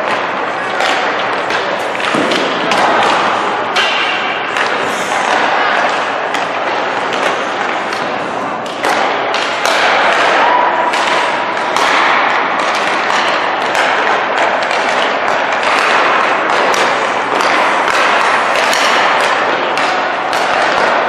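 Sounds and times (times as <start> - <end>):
pucks striking sticks and boards: 0.0 - 21.0.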